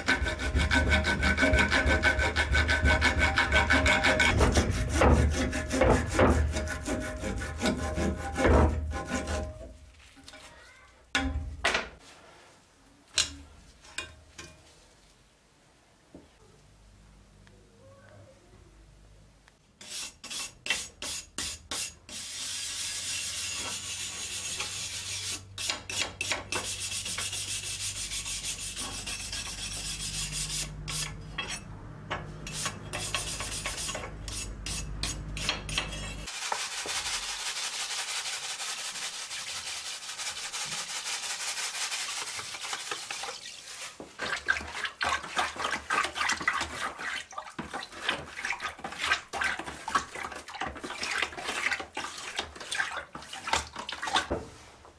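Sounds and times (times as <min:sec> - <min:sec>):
wire brush scraping metal: 0:19.8 - 0:43.1
water sloshing in a tub: 0:42.1 - 0:54.6.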